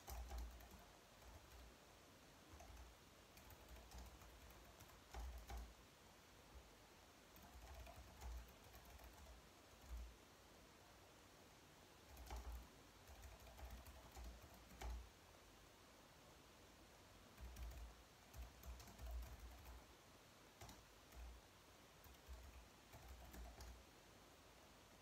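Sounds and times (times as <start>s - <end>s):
faint keyboard typing: 0.0s - 5.8s, 6.6s - 10.2s, 12.0s - 15.2s, 17.2s - 23.9s.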